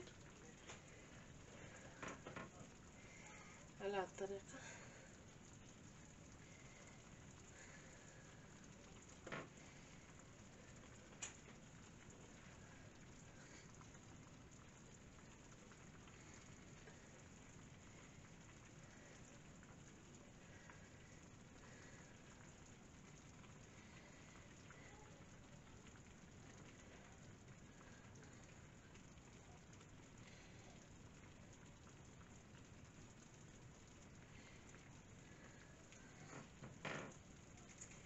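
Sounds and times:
tagine sizzling: 0.0 - 38.0
soft ticks: 10.8 - 12.0.

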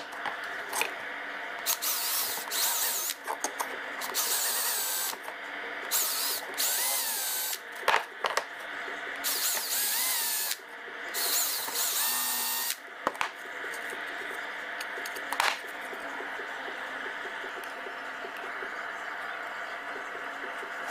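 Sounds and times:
cordless drill whining: 1.7 - 3.2, 5.9 - 7.6, 9.3 - 10.6, 11.2 - 12.8.

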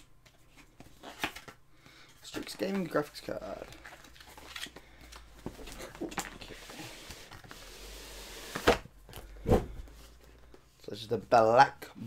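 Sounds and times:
box thumps: 9.4 - 9.9.

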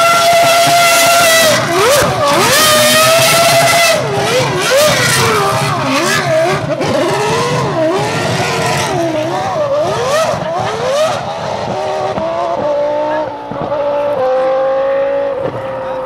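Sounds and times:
racing car engine screaming: 0.0 - 16.0.

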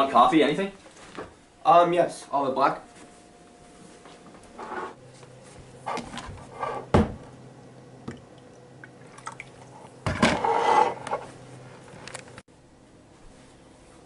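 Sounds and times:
mug scraping on counter: 4.6 - 5.0, 5.8 - 6.9, 10.1 - 11.3.

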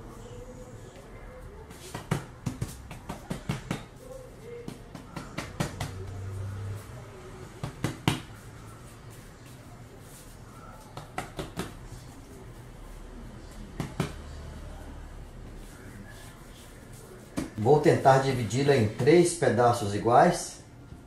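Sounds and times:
hands slapping bread dough: 1.7 - 6.0, 10.9 - 11.8.

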